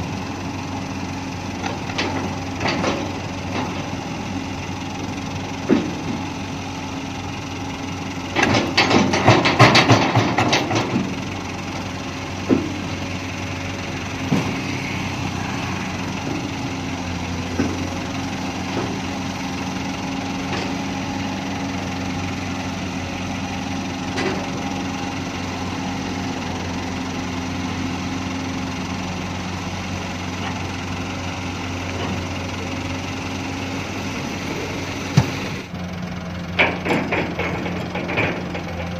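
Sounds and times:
excavator diesel engine running: 0.0 - 38.9
load clattering into steel truck bed: 8.3 - 11.2, 36.5 - 38.9.

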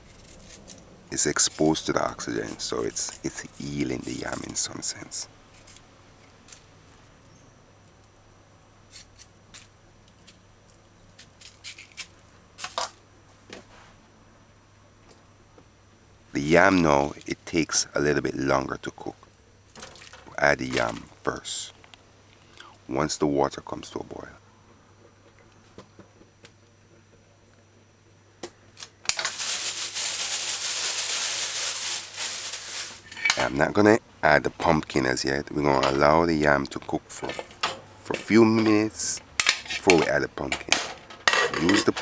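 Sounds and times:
knife scraping peel: 0.0 - 4.2, 8.9 - 9.7, 11.2 - 12.8
peelings dropping into plastic bag: 28.8 - 33.5.

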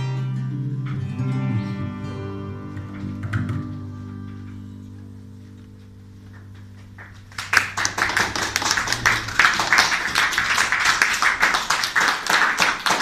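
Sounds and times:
audience applauding: 6.4 - 13.0
loud claps close by: 6.4 - 13.0.

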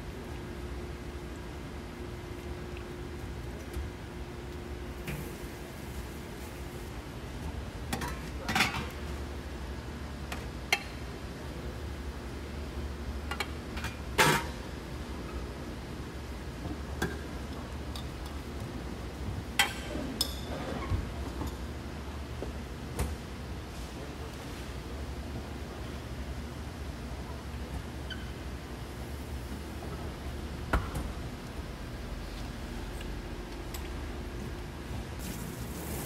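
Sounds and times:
steady low hum: 0.0 - 36.0.

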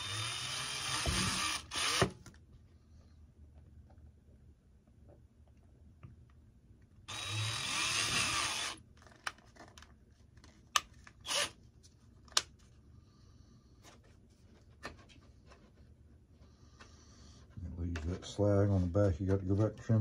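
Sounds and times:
cordless drill boring: 0.0 - 2.2, 7.1 - 8.8, 11.2 - 11.6.

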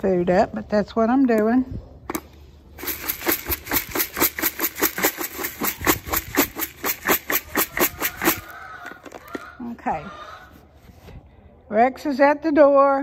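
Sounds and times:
pellets rattling in plastic bucket: 2.8 - 9.5.

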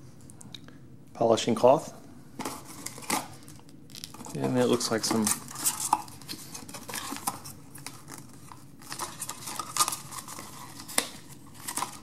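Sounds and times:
paper and cardboard rustling: 4.1 - 12.0.

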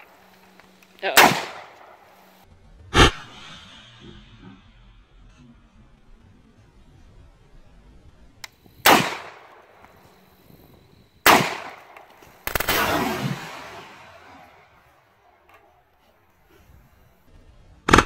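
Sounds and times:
gunshots with rolling echo: 1.0 - 3.8, 8.8 - 9.9, 11.2 - 15.4.

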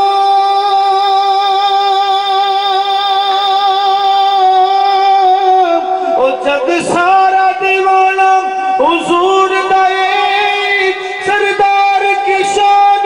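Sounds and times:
person singing a long note: 0.0 - 13.0.

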